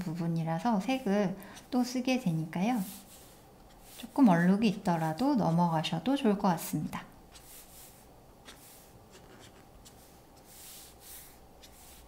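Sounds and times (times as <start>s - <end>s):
marker scratching on paper: 2.6s - 4.8s, 7.3s - 12.0s.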